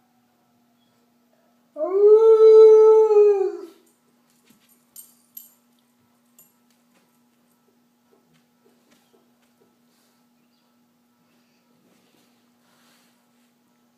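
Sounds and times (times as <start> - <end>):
dog howling: 1.8 - 3.8.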